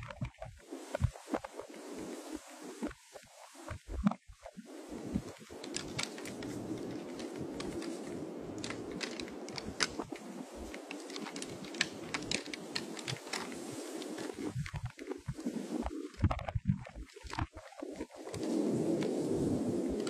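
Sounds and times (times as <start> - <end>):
rustling in dry grass: 0.0 - 20.0
antlers clicking and clacking: 5.6 - 14.8.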